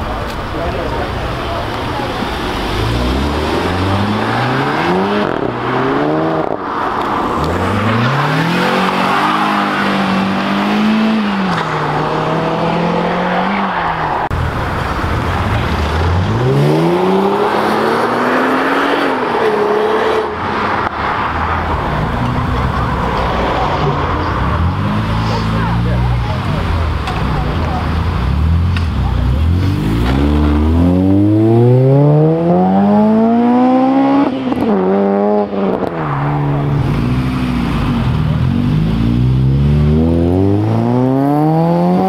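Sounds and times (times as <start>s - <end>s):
car engines revving: 0.0s - 42.0s.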